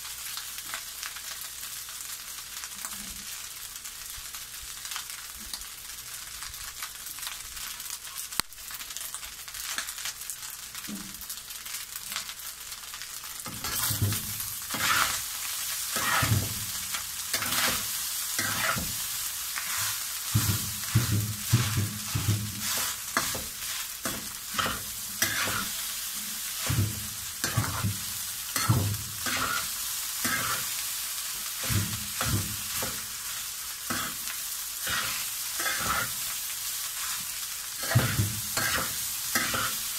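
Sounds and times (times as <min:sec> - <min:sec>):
rice sizzling in a wok: 0:00.0 - 0:39.9
metal spatula scraping wok: 0:13.4 - 0:30.8, 0:31.5 - 0:36.4, 0:37.0 - 0:39.9.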